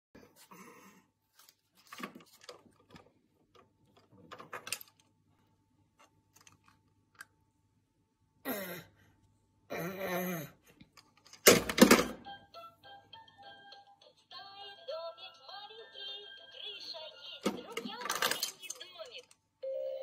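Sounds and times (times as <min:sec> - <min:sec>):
plastic toys tapping and clicking: 0:17.4 - 0:19.4.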